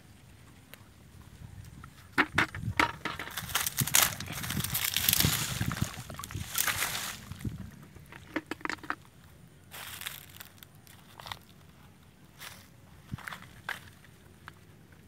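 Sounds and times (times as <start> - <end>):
short crackles: 3.0 - 8.9
muddy water sloshing and splashing: 3.2 - 8.9.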